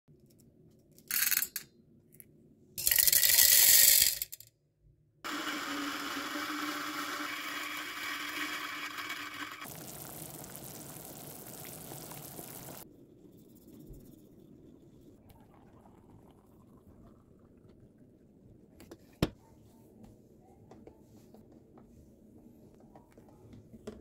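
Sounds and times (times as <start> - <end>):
coffee beans rattling into metal jug: 2.8 - 4.4, 6.6 - 9.9
electric coffee grinder whirring: 5.3 - 10.3
kettle hissing: 5.3 - 12.9.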